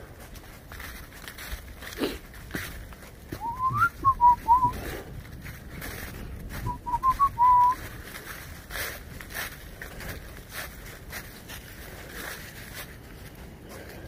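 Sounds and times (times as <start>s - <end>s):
footsteps in dry leaves: 0.0s - 14.0s
person whistling a tune: 3.4s - 4.8s, 6.6s - 7.8s.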